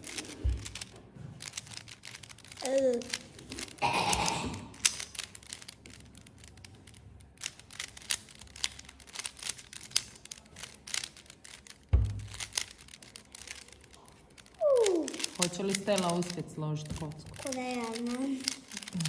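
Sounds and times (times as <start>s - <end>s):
puzzle cube clicking: 0.0s - 19.0s
dull thump: 11.9s - 12.4s.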